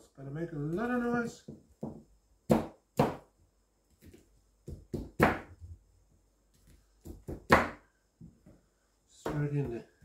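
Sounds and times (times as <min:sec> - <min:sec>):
cleaver chopping on wooden board: 0:01.5 - 0:03.3, 0:04.0 - 0:05.5.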